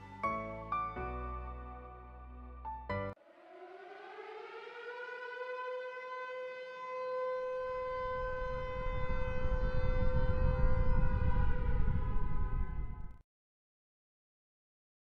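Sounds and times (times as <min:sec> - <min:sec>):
siren-like power-up tone: 0:07.0 - 0:13.2
low rumble: 0:07.8 - 0:13.2.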